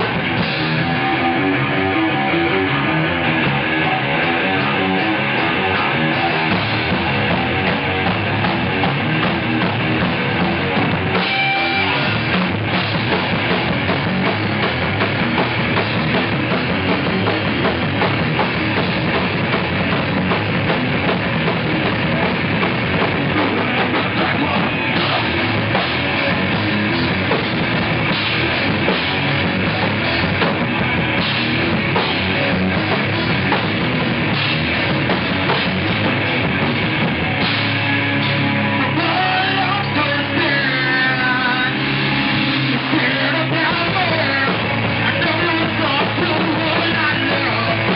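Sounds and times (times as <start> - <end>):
bass guitar: 0.0 - 47.9
electric guitar: 0.0 - 47.9
pounding drum kit: 0.0 - 47.9.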